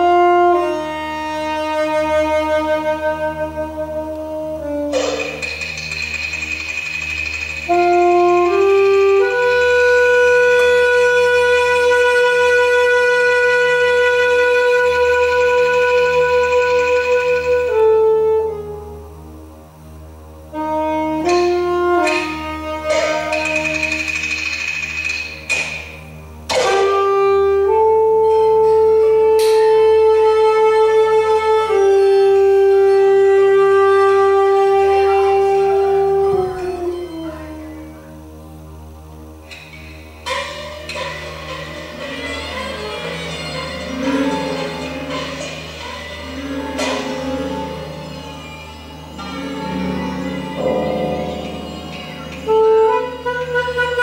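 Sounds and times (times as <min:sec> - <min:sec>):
saxophone long note: 0:00.0 - 0:05.4, 0:07.7 - 0:19.5, 0:20.5 - 0:23.7, 0:26.5 - 0:38.8, 0:49.2 - 0:54.0.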